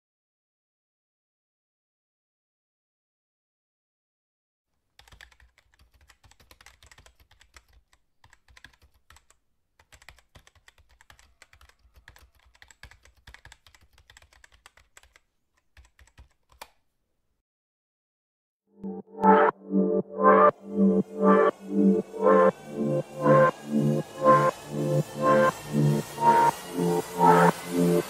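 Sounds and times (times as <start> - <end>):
typing on computer keyboard: 5.0 - 16.8.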